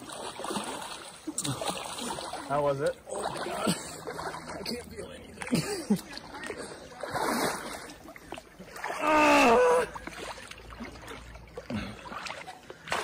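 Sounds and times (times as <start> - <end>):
water splashing around legs: 0.0 - 13.0
man crying out: 9.0 - 9.9.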